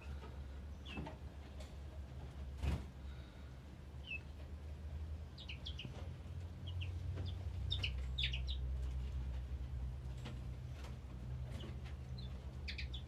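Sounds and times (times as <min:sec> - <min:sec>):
small songbirds chirping: 0:00.0 - 0:01.2, 0:03.1 - 0:09.2, 0:10.0 - 0:13.0.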